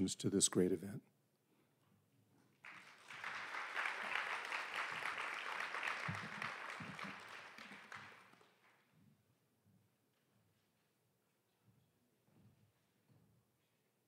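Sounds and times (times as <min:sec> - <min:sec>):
audience applauding: 0:02.6 - 0:08.7.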